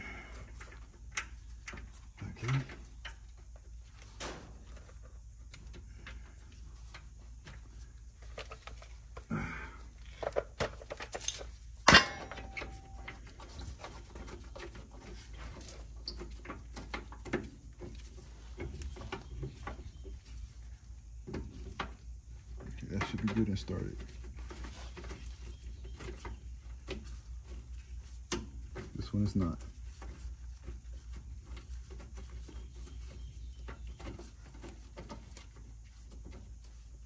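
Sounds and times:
small metallic clicks and rattles: 0.3s - 7.6s, 10.0s - 19.9s
sharp metal clink: 11.9s - 13.1s.

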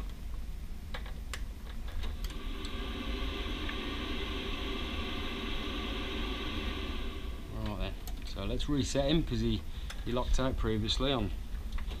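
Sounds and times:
boiler whirring hum: 0.0s - 12.0s
boiler clicks: 7.5s - 8.6s.

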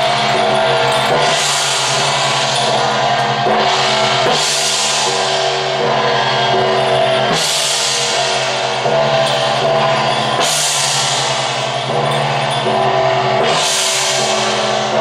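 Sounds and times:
drumming: 0.0s - 15.0s
hand cymbals crashing: 0.0s - 15.0s.

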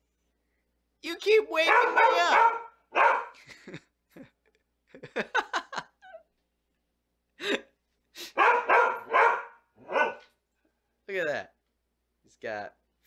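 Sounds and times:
dog barking: 1.6s - 3.4s, 8.3s - 10.4s
dog yelping: 1.6s - 3.4s, 8.4s - 10.3s.

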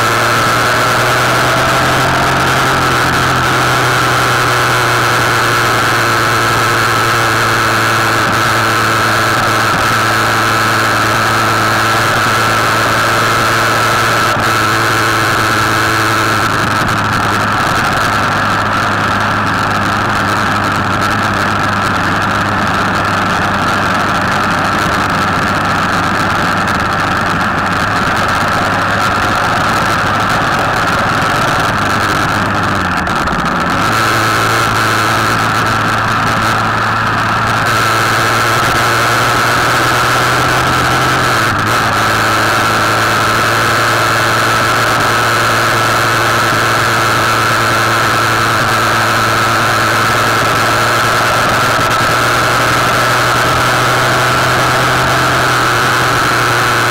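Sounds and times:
motorcycle engine running: 0.0s - 56.9s.

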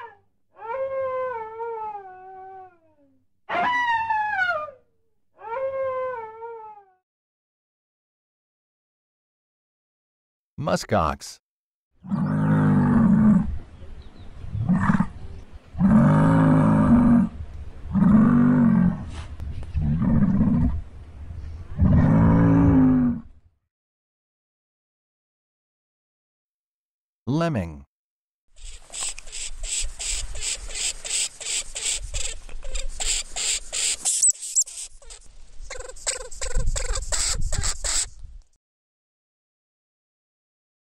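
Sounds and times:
lemming squeaky calls: 28.6s - 38.1s
thin high whistles: 33.0s - 34.9s.

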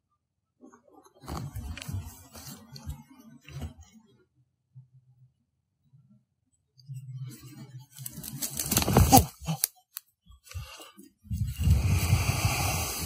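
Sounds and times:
ferns crunching underfoot: 8.0s - 9.7s.

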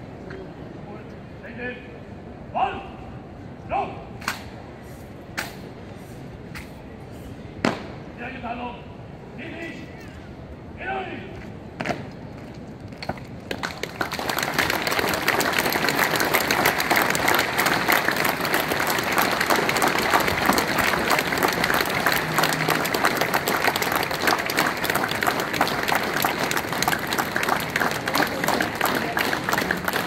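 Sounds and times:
crowd applauding: 13.5s - 30.0s.

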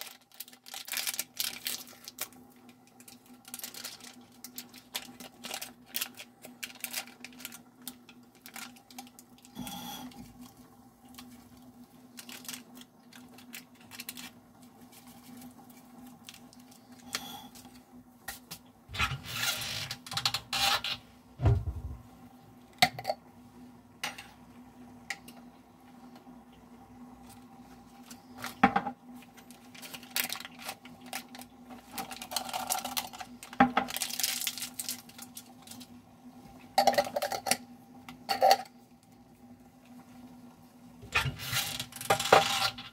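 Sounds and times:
packets crinkling: 0.0s - 10.5s, 11.1s - 17.8s, 29.5s - 36.0s
steady low hum: 1.4s - 42.9s.

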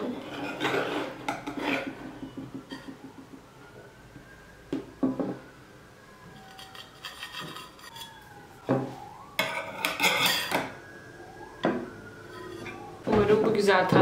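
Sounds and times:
metal scraping on plate: 0.0s - 2.9s, 6.3s - 8.3s, 9.4s - 10.6s, 12.3s - 12.9s
knock: 5.0s - 5.4s.

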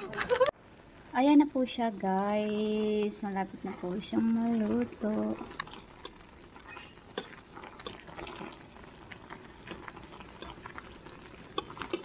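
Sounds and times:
water boiling: 0.0s - 12.0s
fork clicking against metal pot: 5.6s - 6.2s.

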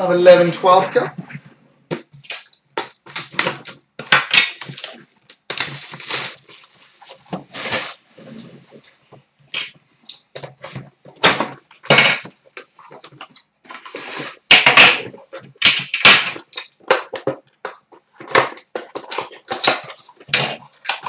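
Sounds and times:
shrink wrap crinkling and tearing: 2.2s - 8.8s.

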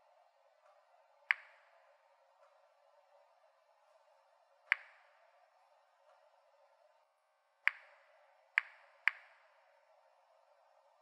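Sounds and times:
geiger counter clicking: 1.2s - 1.8s, 4.7s - 5.2s, 7.7s - 9.7s.

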